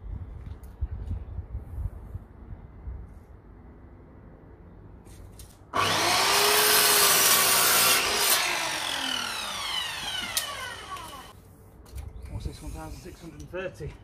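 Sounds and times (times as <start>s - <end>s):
mitre saw cutting timber: 5.8s - 11.3s
saw blade winding down whine: 5.8s - 11.3s.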